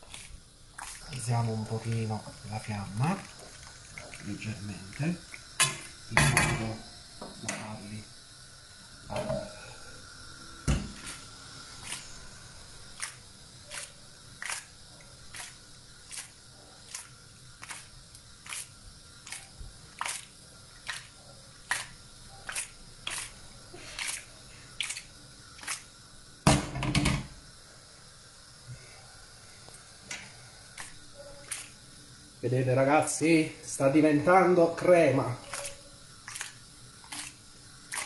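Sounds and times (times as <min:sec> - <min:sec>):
sauce bubbles popping: 0:00.0 - 0:06.1, 0:11.2 - 0:26.0, 0:35.5 - 0:38.0.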